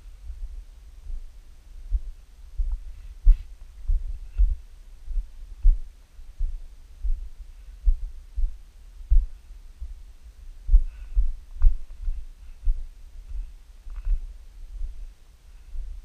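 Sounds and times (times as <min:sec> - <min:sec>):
footsteps dull thumps: 0:01.9 - 0:05.8, 0:06.4 - 0:10.0, 0:10.7 - 0:15.1.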